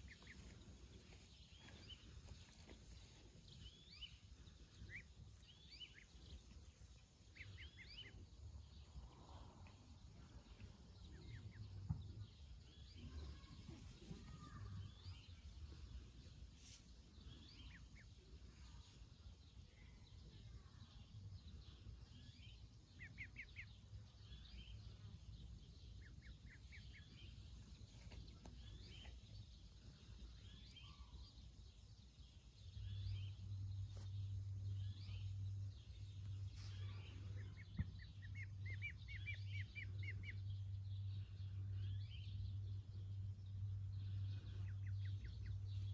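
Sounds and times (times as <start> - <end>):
ducklings peeping: 0.0 - 8.7, 21.1 - 45.9
low steady rumble: 0.0 - 45.9.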